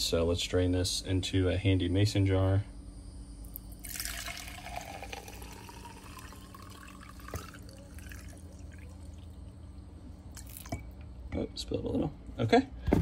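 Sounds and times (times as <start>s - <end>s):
gasoline pouring into a jar: 3.5s - 9.5s, 10.3s - 10.8s.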